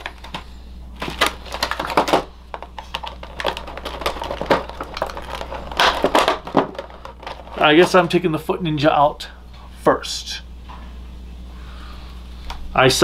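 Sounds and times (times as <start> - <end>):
plastic packaging clicking and crinkling: 0.0 - 8.2.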